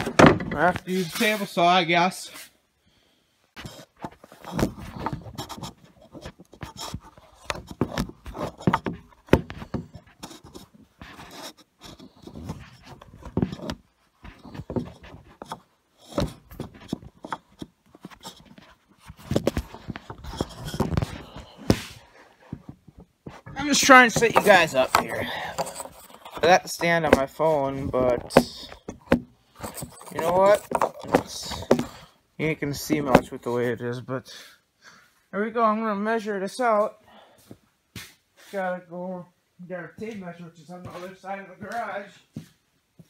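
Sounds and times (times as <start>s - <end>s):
phone handling knocks and scrapes: 0.0s - 1.4s, 3.6s - 32.0s.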